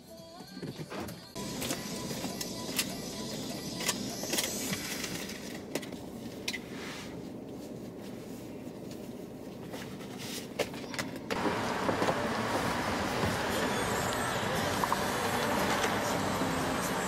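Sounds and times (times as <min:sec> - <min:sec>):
steady low rumble: 0:04.7 - 0:10.5
clicks and knocks inside car: 0:09.6 - 0:13.6.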